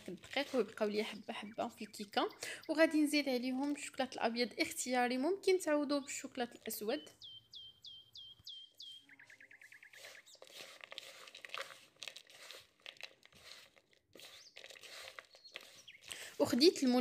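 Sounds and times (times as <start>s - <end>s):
nuts crunching in a plastic bowl: 0.0s - 2.0s, 10.0s - 17.0s
bird chirping and trilling: 0.5s - 3.2s, 6.0s - 10.7s, 14.2s - 16.2s.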